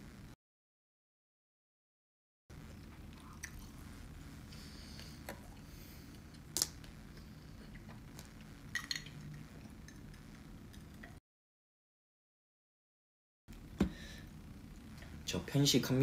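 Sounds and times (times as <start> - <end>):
low room hum: 0.0 - 0.4, 2.5 - 11.2, 13.5 - 16.0
mouth chewing food: 2.6 - 3.8.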